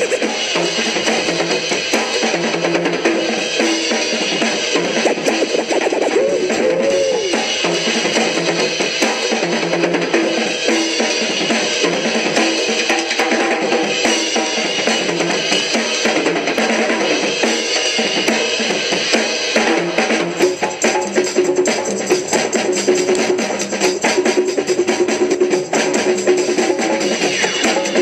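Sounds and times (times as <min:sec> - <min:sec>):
music with drum beat: 0:00.0 - 0:28.0.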